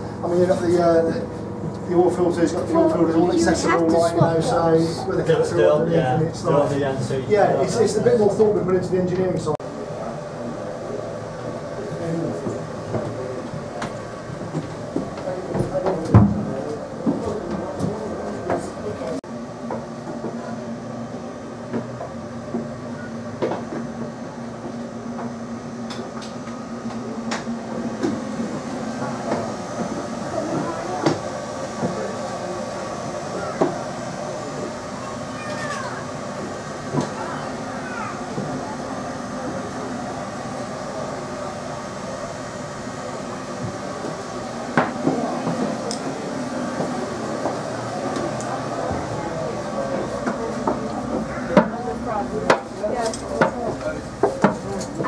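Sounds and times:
diesel engines idling hum: 0.0 - 19.2.

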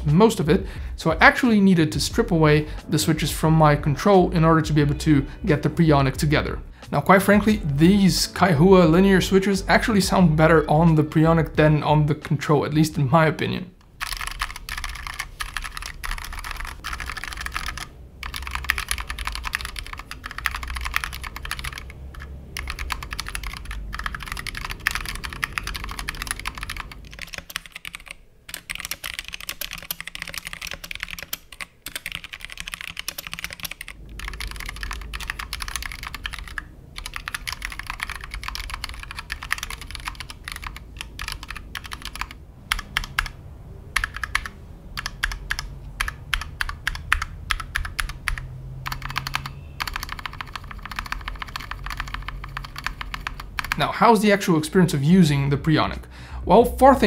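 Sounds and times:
mechanical keyboard typing: 13.8 - 53.9.

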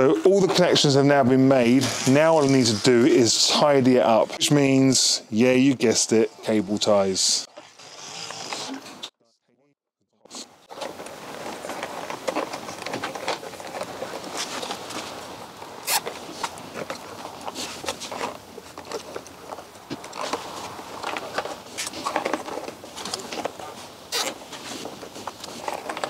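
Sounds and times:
rustling of cables: 0.0 - 4.8, 10.4 - 26.0.

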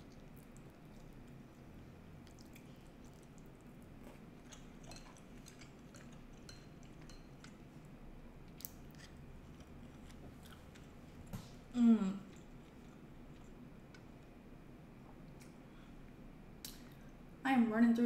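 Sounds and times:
chewing meat: 0.0 - 14.4
low steady hum: 0.0 - 18.0.

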